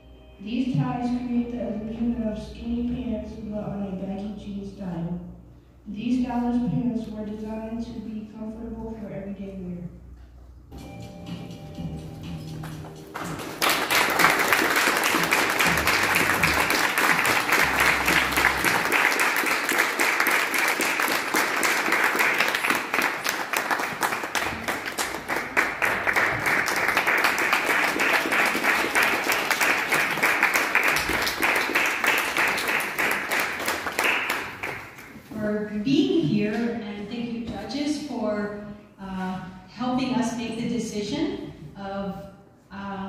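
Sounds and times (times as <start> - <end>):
audience applauding: 13.1 - 35.0.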